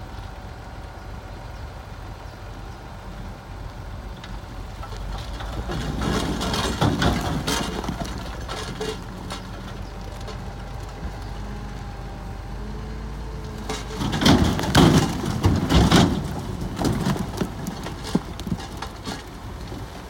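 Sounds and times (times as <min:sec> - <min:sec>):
bulldozer diesel engine running: 0:00.0 - 0:20.0
grinding clatter: 0:04.2 - 0:11.4, 0:13.4 - 0:20.0.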